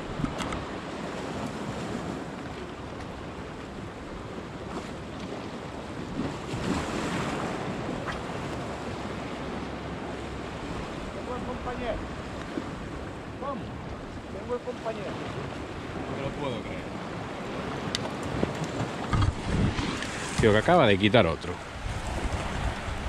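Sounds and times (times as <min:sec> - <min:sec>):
waves washing on rocky shore: 0:00.0 - 0:23.0
wind on microphone: 0:16.8 - 0:23.0.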